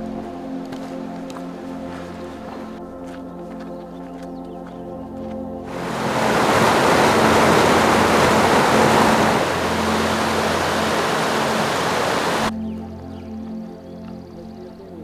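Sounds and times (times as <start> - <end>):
water rushing over rocks: 5.7 - 12.5.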